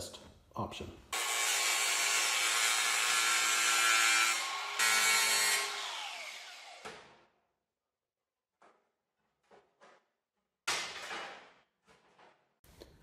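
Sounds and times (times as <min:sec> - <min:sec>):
angle grinder cutting steel: 0:01.2 - 0:06.8.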